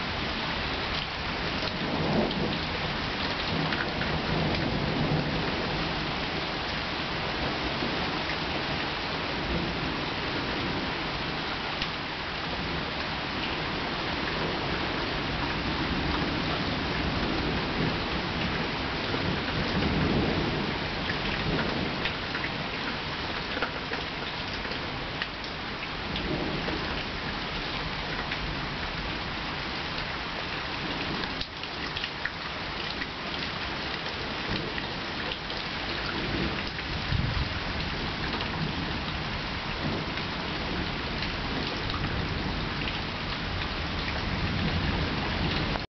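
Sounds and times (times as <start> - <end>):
steady rain: 0.0 - 45.9
thunder rumbling: 1.4 - 6.5, 36.0 - 45.9.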